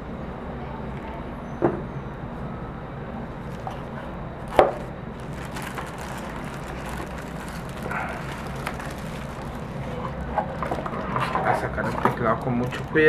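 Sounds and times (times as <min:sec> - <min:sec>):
plastic bag crinkling: 0:03.4 - 0:03.8, 0:04.5 - 0:10.9.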